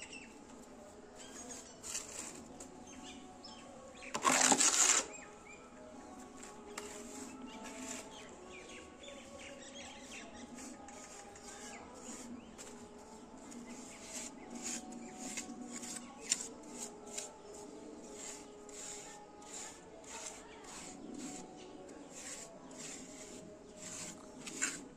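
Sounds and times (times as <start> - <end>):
trowel scraping wet cement: 1.2 - 2.7, 4.1 - 5.2, 6.4 - 8.4, 9.9 - 24.9.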